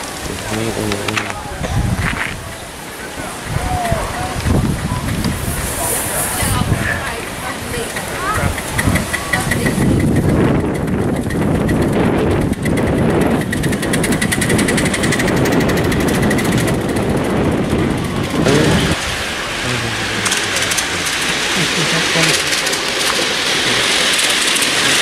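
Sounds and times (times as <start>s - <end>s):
miniature train rumbling and clicking: 0.0s - 25.0s
steady hiss: 5.1s - 9.2s.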